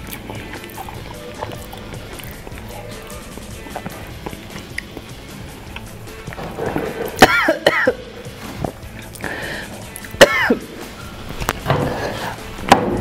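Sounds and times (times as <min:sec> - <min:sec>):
background music: 0:00.0 - 0:13.0
man crying out and coughing: 0:07.2 - 0:08.0, 0:10.2 - 0:10.6.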